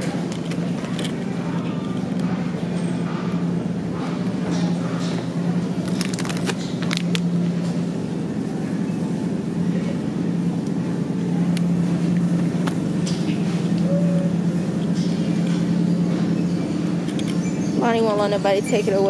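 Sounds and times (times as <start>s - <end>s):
steady low hum: 0.0s - 19.0s
plastic packaging crinkling: 5.8s - 7.1s
sharp clicks and rattles: 5.8s - 7.3s.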